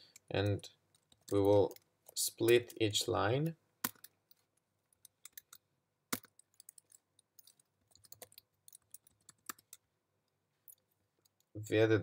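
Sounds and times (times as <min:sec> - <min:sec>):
computer keyboard keystrokes: 0:03.8 - 0:09.8.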